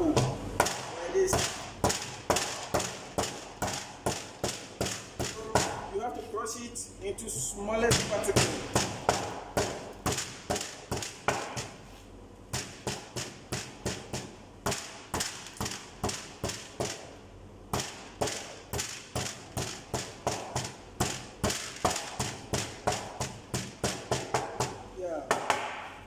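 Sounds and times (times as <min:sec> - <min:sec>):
hammer striking stone: 0:17.7 - 0:25.9.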